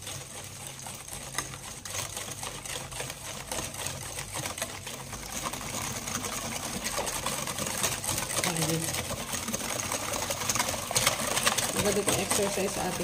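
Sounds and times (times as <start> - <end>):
whisk clicking in metal bowl: 0.0 - 13.0.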